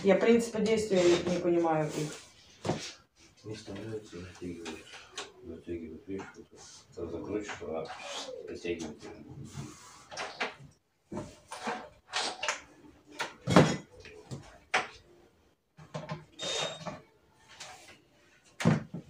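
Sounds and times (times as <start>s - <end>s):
furniture panels knocking and clattering: 13.2s - 15.0s.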